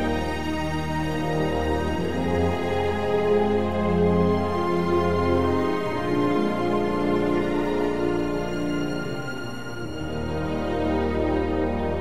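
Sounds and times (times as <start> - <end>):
slow soft background music: 0.0 - 12.0.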